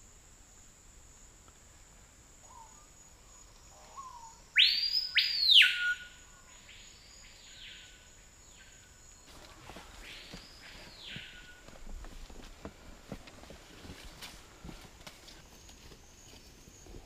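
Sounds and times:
bird whistling: 4.6s - 6.2s.

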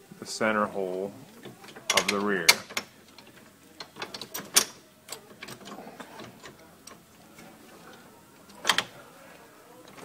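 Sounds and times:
faint handling sounds: 0.0s - 10.0s
metal parts clicking and clinking: 1.4s - 7.0s, 8.4s - 8.9s.

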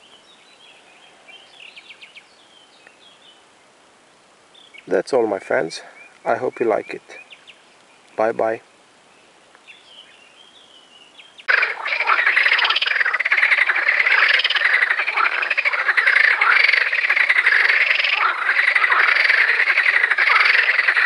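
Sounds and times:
frogs croaking in chorus: 11.4s - 21.0s.

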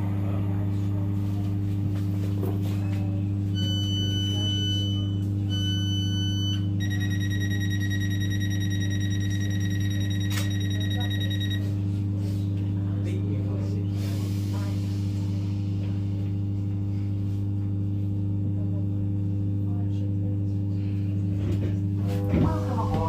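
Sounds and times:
train electrical hum: 0.0s - 23.0s
steady warning tone: 3.4s - 11.8s
electronic beeps: 3.6s - 11.7s.

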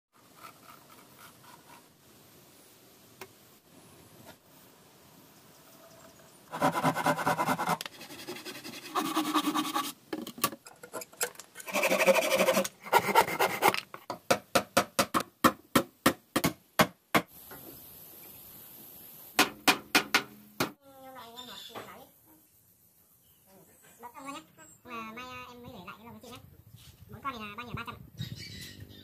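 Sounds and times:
hand saw cutting wood: 0.2s - 1.9s, 6.5s - 10.0s, 10.8s - 13.8s
sharp evenly spaced knocks: 14.1s - 17.3s, 19.4s - 20.8s.

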